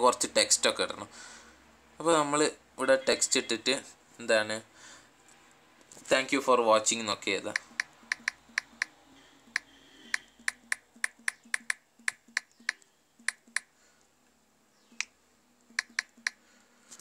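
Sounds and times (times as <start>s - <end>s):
phone key-press clicks: 7.6s - 8.9s, 9.6s - 13.7s, 15.8s - 16.4s.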